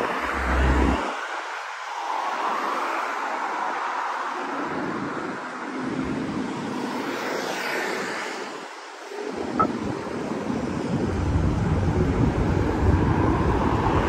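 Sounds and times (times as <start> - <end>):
road traffic passing: 0.0 - 1.6, 9.1 - 9.8.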